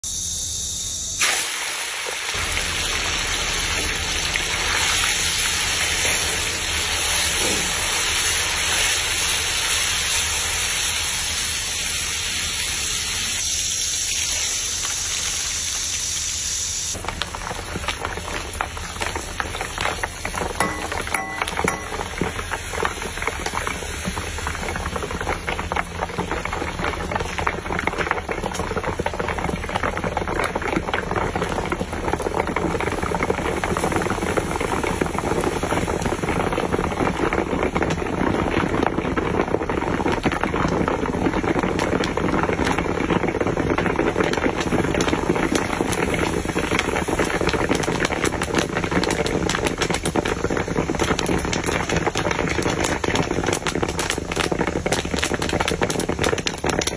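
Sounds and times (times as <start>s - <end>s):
popcorn popping in hot oil: 0.0s - 56.9s.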